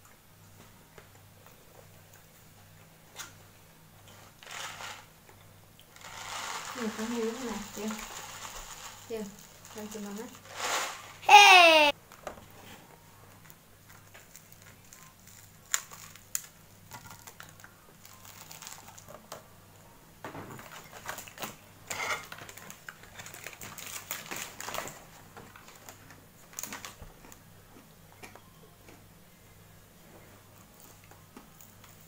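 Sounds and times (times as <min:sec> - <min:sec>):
bread crust crackling: 0:05.8 - 0:11.1, 0:13.4 - 0:19.2
faint low hum: 0:11.4 - 0:32.0.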